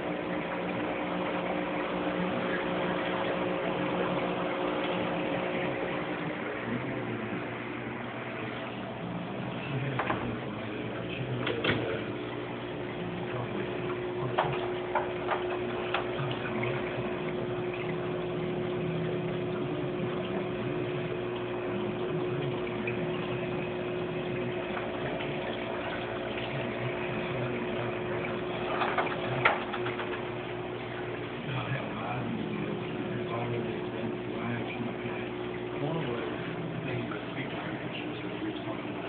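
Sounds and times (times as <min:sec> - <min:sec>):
aquarium water running: 0:00.0 - 0:39.0
steady hum: 0:00.0 - 0:39.0.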